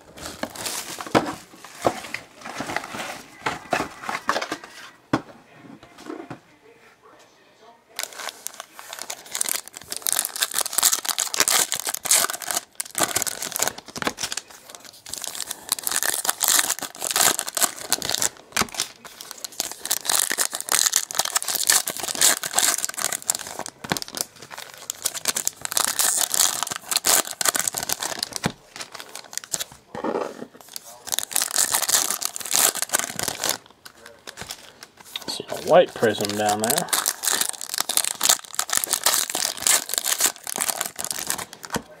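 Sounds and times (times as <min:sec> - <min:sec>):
foil wrappers crinkling and tearing: 0:00.1 - 0:04.6, 0:08.0 - 0:29.8, 0:30.6 - 0:42.0.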